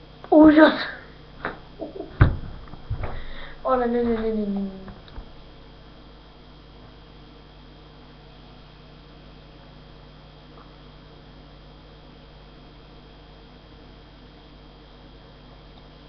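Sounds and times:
electrical hum and hiss: 0:00.0 - 0:16.0.

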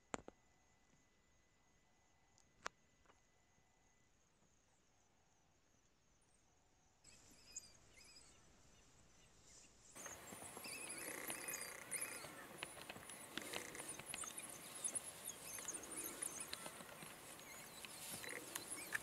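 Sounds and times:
pups twittering squeaks and chirps: 0:07.1 - 0:19.0
rustling in dry grass: 0:10.0 - 0:19.0.

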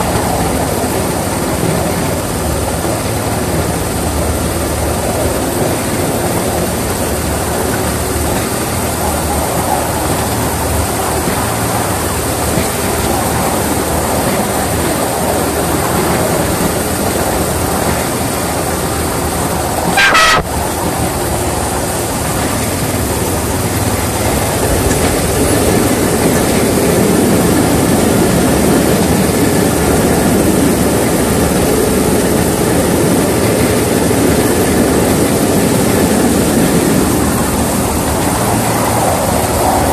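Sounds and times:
miniature locomotive running: 0:00.0 - 0:39.9
locomotive horn toot: 0:19.9 - 0:20.6.

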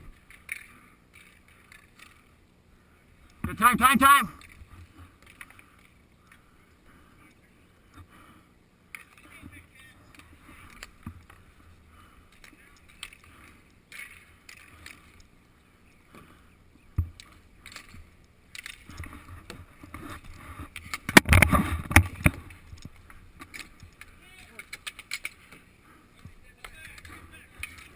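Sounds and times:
inline skate wheels rolling: 0:00.0 - 0:02.4, 0:08.9 - 0:27.9
stick and puck clicks: 0:08.9 - 0:09.4, 0:20.7 - 0:25.6, 0:26.2 - 0:27.9.

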